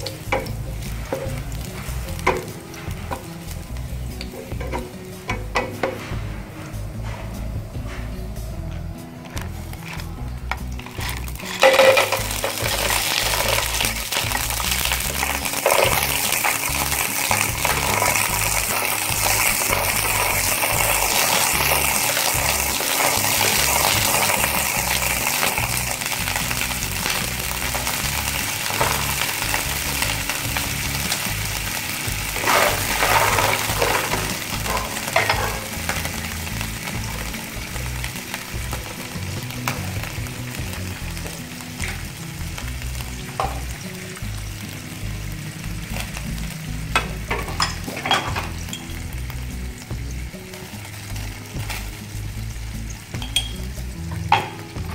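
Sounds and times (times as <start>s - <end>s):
spatula and shells clacking on pan: 0.0s - 6.2s, 9.8s - 31.4s, 32.0s - 39.9s, 43.2s - 43.8s, 46.9s - 49.1s, 53.1s - 54.9s
cockles sizzling in hot oil: 0.0s - 54.9s.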